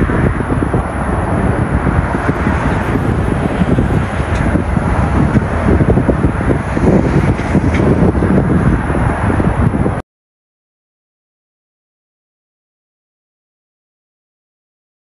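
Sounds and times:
jet engines roaring at takeoff: 0:00.0 - 0:10.0.

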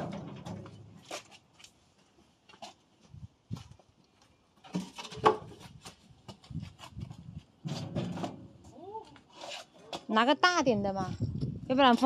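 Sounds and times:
objects knocking and clattering: 0:07.6 - 0:08.6.

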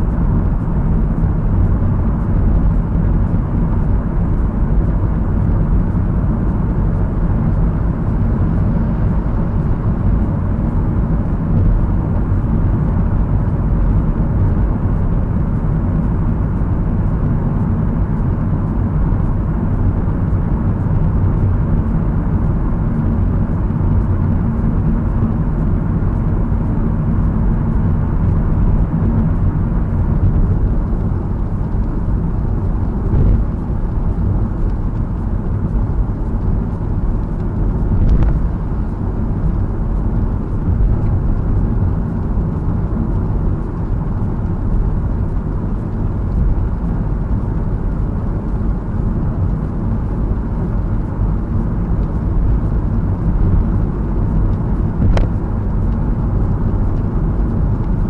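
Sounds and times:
car tyre and engine rumble: 0:00.0 - 0:58.0.

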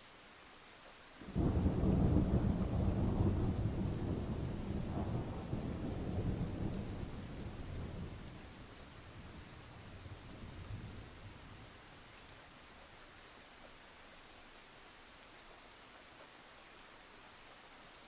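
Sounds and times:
faint steady hiss: 0:00.0 - 0:18.0
thunder rumbling: 0:01.2 - 0:11.5.

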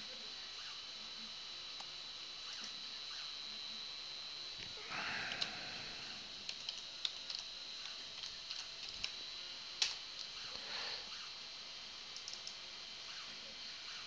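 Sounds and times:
faint high whine: 0:00.0 - 0:14.0
keyboard keystrokes clicking: 0:12.2 - 0:12.6.

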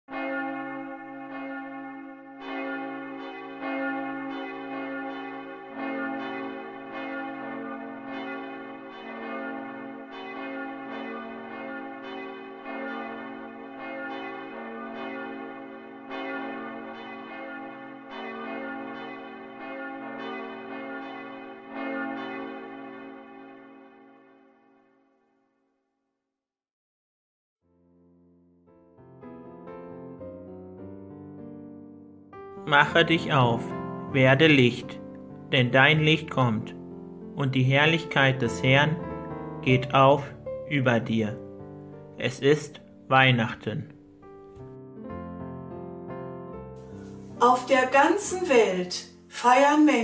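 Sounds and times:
church bells ringing in a peal: 0:00.1 - 0:24.4, 0:32.6 - 0:44.1
deeper bell ringing: 0:00.1 - 0:24.4, 0:32.6 - 0:43.0.

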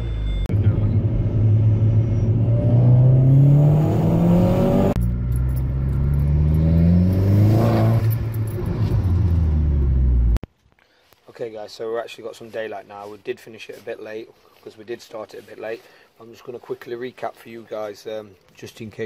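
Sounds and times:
car engine revving: 0:00.0 - 0:10.4.

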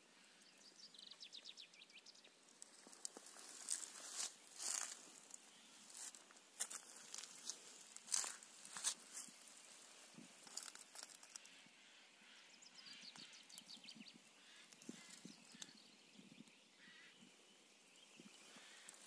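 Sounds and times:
light clicks and rustles: 0:10.2 - 0:11.5.

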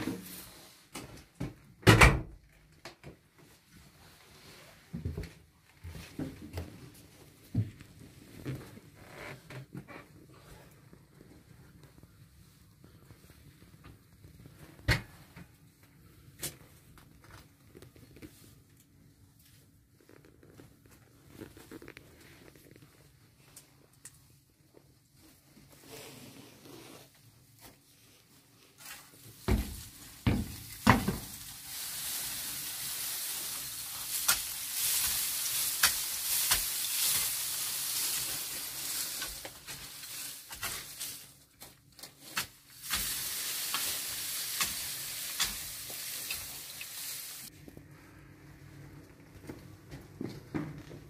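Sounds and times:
wood chips scraped across floor: 0:28.7 - 0:47.5.

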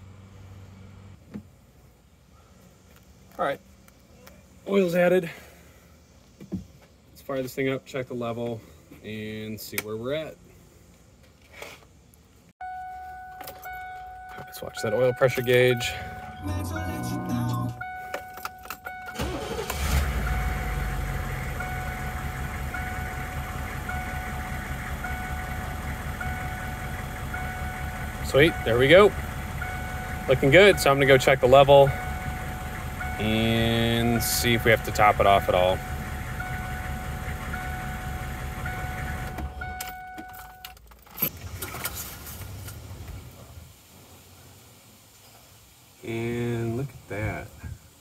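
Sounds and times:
warning chime beeping: 0:12.6 - 0:40.6
diesel engine starting and idling: 0:13.7 - 0:40.5, 0:41.2 - 0:43.9.

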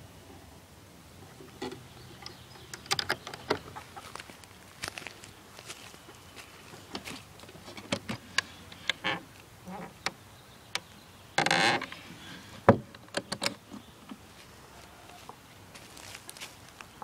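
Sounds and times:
footsteps on dry leaves: 0:03.8 - 0:07.5, 0:14.3 - 0:17.0.

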